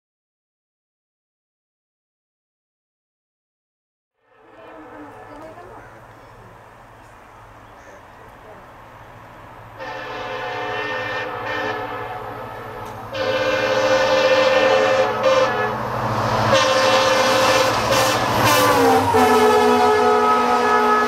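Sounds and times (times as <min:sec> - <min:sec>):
locomotive multi-tone horn: 0:04.2 - 0:06.1, 0:09.8 - 0:21.0
locomotive engine drone: 0:04.2 - 0:21.0
train rumble: 0:04.3 - 0:21.0.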